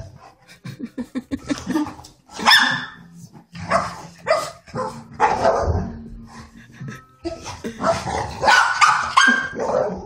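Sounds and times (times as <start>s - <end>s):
dog barking: 2.4s - 3.0s, 3.7s - 5.8s, 7.8s - 10.0s.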